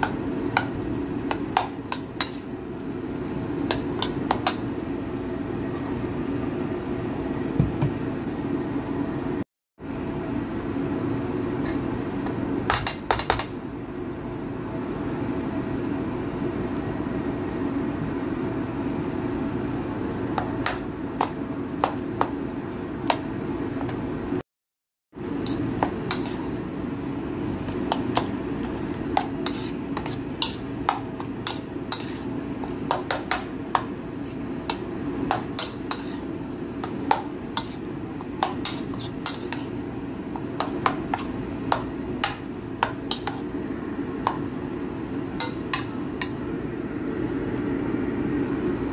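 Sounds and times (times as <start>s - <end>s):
spoon mashing food in a bowl: 0.0s - 4.7s, 20.3s - 24.0s, 25.3s - 26.6s, 27.4s - 43.6s, 44.2s - 44.5s, 45.4s - 46.4s
steady low hum: 25.2s - 48.9s.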